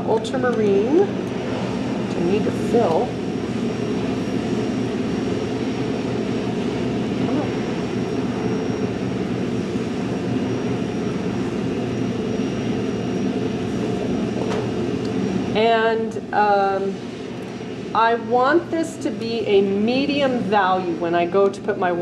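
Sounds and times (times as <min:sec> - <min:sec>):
ventilation hiss and hum: 0:00.0 - 0:22.0
faint high whine: 0:01.0 - 0:18.3.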